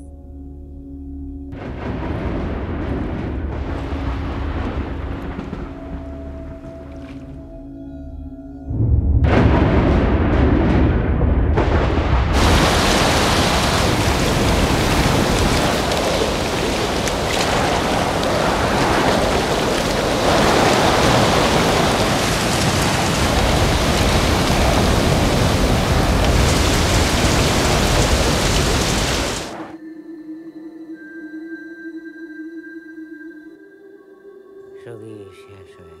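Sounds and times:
heavy rain downpour: 11.6s - 29.8s.

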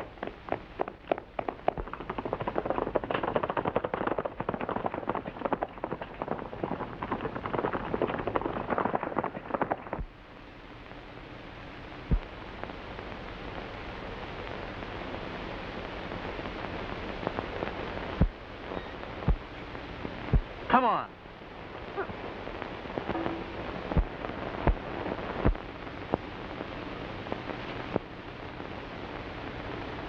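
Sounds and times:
horse hooves galloping on trail: 0.0s - 10.1s
old film soundtrack hiss: 0.0s - 30.0s.

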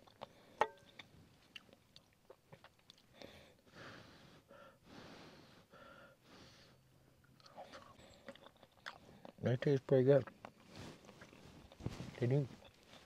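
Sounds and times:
person chewing: 0.0s - 3.3s, 7.2s - 11.9s
soft breaths: 3.1s - 9.4s, 10.6s - 13.0s.

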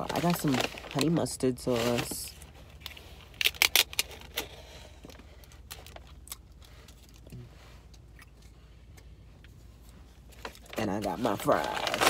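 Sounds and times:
paper bag crinkling: 0.0s - 6.8s, 10.3s - 12.0s.

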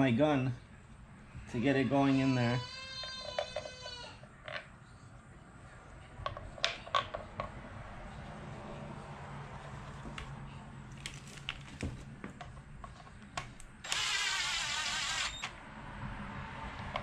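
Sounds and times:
cordless driver spinning bolt: 13.8s - 15.6s.

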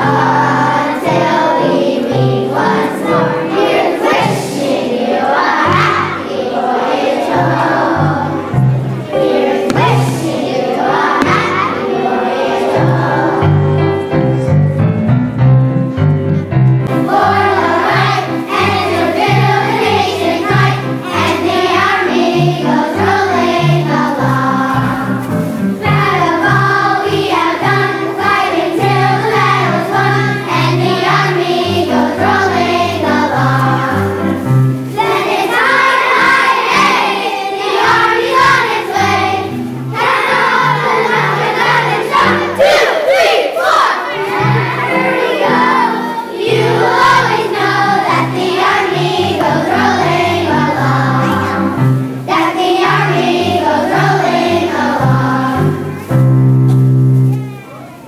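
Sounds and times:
children singing: 0.0s - 14.6s, 16.9s - 56.3s
instrumental accompaniment with bass: 12.9s - 35.3s.

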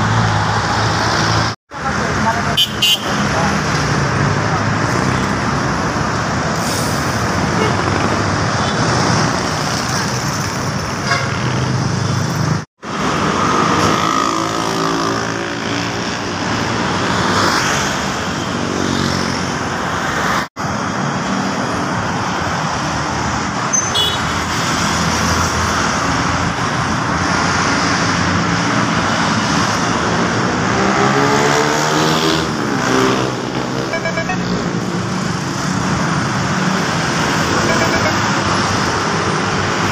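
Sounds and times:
city road traffic: 0.0s - 39.9s
car horns tooting: 2.5s - 3.3s, 23.7s - 24.3s, 33.8s - 34.6s, 37.6s - 38.4s.

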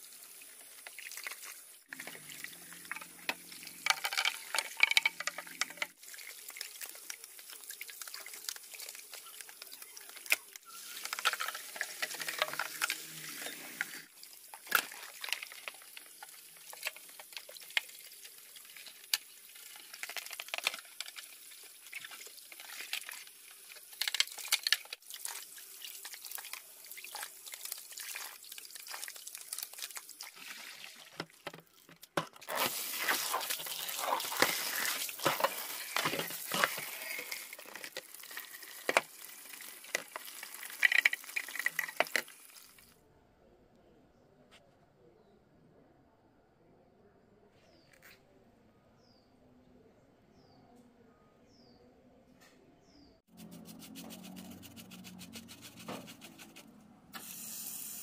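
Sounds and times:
small clicks and crackles: 6.6s - 13.2s, 14.5s - 21.4s, 22.0s - 25.0s, 31.2s - 42.9s
wet scrubbing: 32.5s - 38.0s, 53.3s - 56.8s.

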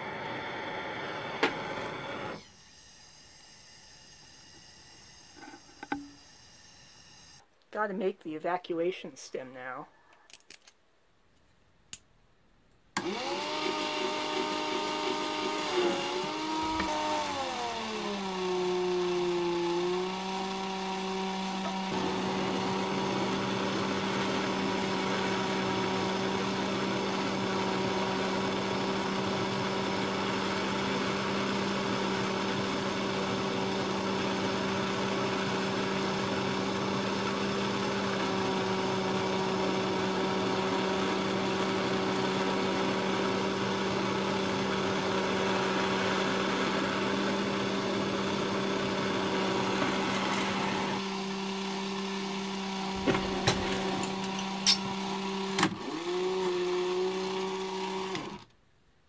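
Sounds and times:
small electric motor running: 2.1s - 7.4s, 13.0s - 28.4s, 49.4s - 58.3s.

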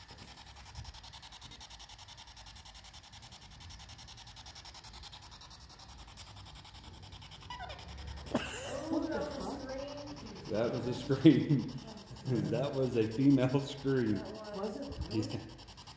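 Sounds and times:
pulsing radio static hiss: 0.0s - 1.7s, 8.2s - 15.9s.

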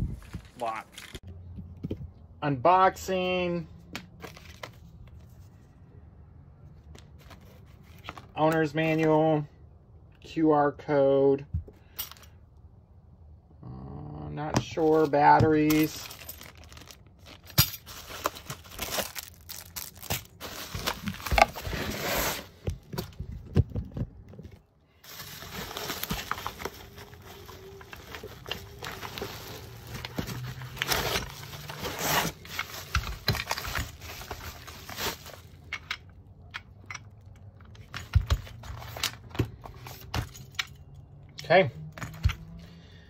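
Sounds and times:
bubble wrap crinkling: 16.4s - 22.4s, 25.0s - 35.6s.

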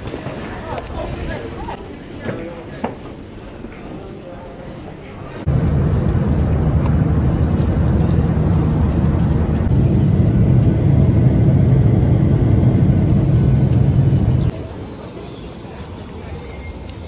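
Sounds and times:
airliner cabin engine rumble: 5.4s - 14.6s.

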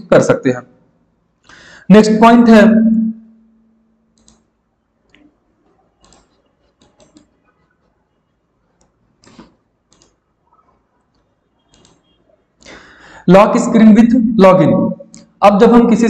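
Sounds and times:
faint computer mouse clicks: 4.2s - 4.5s.

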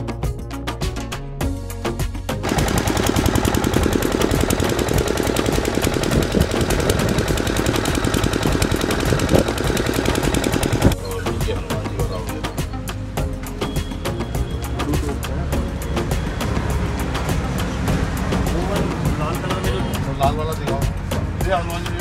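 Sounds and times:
background music: 0.0s - 22.0s
water pump engine chugging: 2.4s - 11.0s.

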